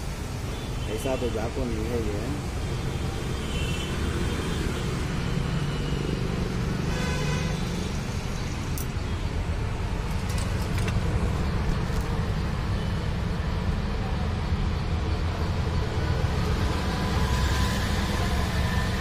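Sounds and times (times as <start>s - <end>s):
low rumble of motor vehicles: 4.4s - 19.0s.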